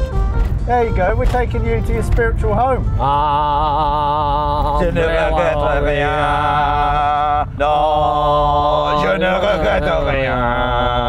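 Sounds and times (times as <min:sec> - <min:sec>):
moving car rumble: 0:00.0 - 0:11.0
man singing: 0:02.8 - 0:11.0.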